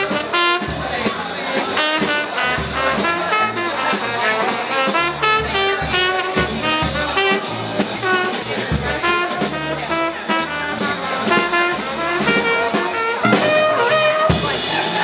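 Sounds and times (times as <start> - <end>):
trumpet melody: 0.0 - 1.1, 1.7 - 15.0
drum kit cymbals: 0.0 - 15.0
plucked upright bass: 0.0 - 15.0.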